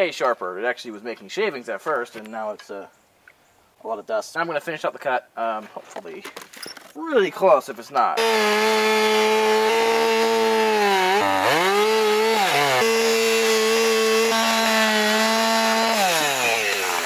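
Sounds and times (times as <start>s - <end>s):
chainsaw cutting through log: 8.2s - 17.0s.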